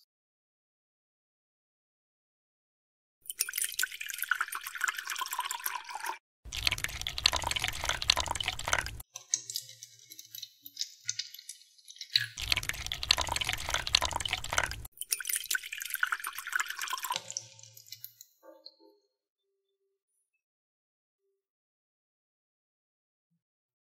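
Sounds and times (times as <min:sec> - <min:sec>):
water dripping: 0:03.2 - 0:18.8
water pouring into plastic tray: 0:03.3 - 0:18.1.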